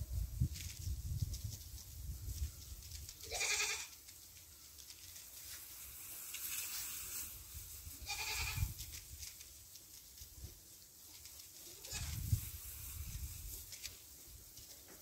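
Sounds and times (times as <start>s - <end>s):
goat bleating: 3.2s - 4.0s, 8.0s - 8.7s, 11.8s - 12.2s.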